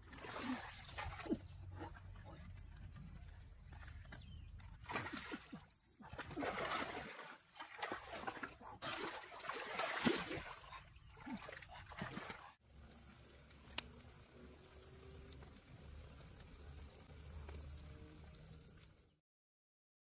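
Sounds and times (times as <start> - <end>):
water splashing: 0.0 - 2.4, 4.7 - 19.0
wooden pole thrashing in stream: 4.6 - 12.6.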